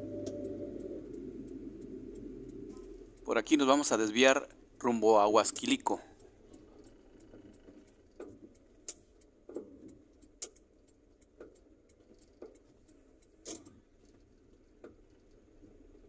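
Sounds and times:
car interior rumble: 0.0s - 10.2s.

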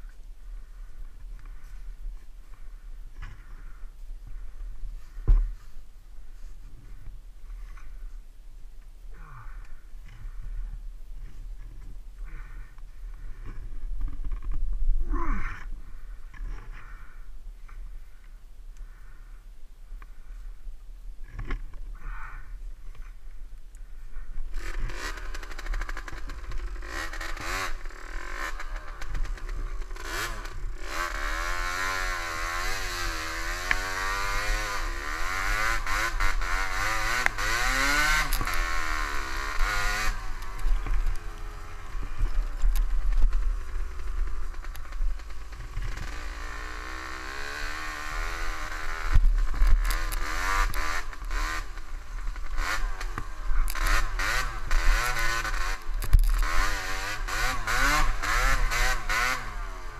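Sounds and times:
motorbike engine revving: 24.5s - 59.9s.

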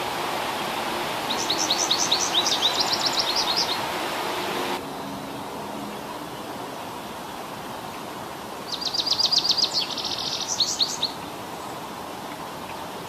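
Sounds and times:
background hiss: 0.0s - 13.0s
bird singing: 1.3s - 3.9s, 8.7s - 11.8s.

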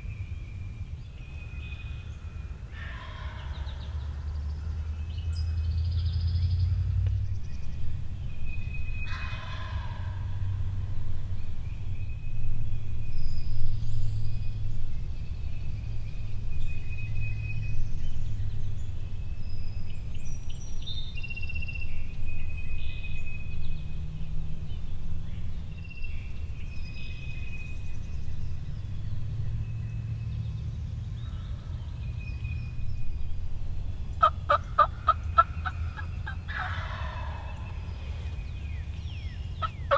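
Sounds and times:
songbirds calling: 0.0s - 39.9s
turkey gobbling: 34.2s - 37.6s, 39.6s - 39.9s.

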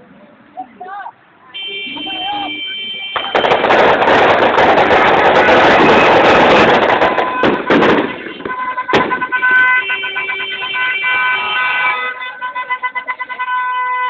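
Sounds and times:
car horns held on steady tones: 1.6s - 3.8s, 5.4s - 14.0s
sharp bangs: 3.1s - 11.1s
loud noisy rush: 3.2s - 8.5s
sharp crack: 3.2s - 9.5s.

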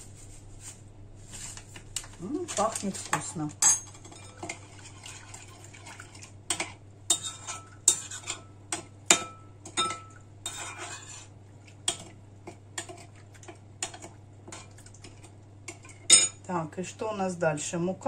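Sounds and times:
utensil clinking against bowl: 2.5s - 4.6s, 6.5s - 11.1s, 15.7s - 16.4s
utensil scraping bowl: 2.5s - 8.5s, 10.4s - 12.1s.

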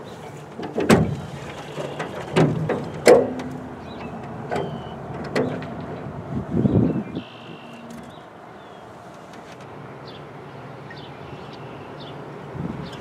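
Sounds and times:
outboard engine turning over: 0.6s - 8.2s.

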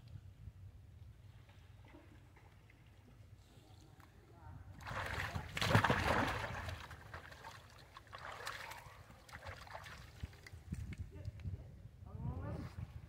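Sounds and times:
monkeys splashing in water: 4.8s - 10.4s.

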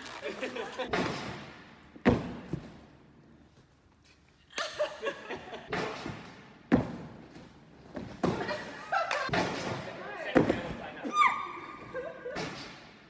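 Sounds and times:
laughter: 0.2s - 0.9s, 4.5s - 5.8s, 8.4s - 9.4s, 11.8s - 12.5s
gymnast landing on crash mat: 0.9s - 2.8s.

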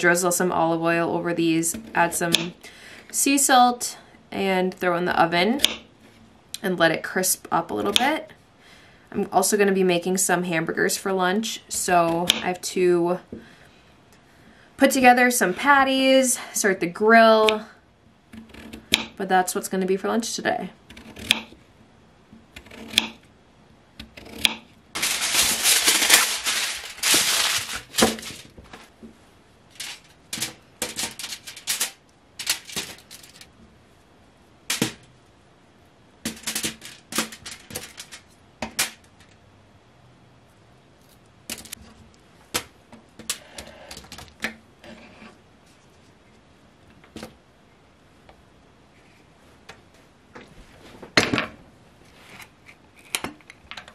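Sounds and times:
rustling: 24.9s - 33.6s, 36.3s - 38.4s.

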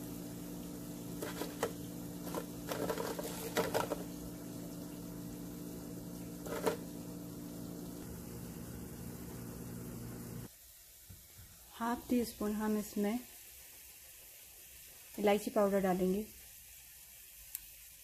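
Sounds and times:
low mechanical hum: 0.0s - 10.7s
fried bread crackling: 1.1s - 4.1s.

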